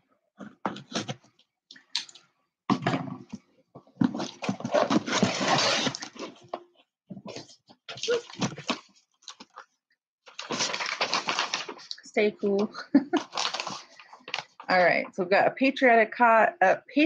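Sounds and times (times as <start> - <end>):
paper packaging rustling and tearing: 4.0 - 6.6, 7.3 - 9.6, 10.3 - 12.0, 13.1 - 14.7.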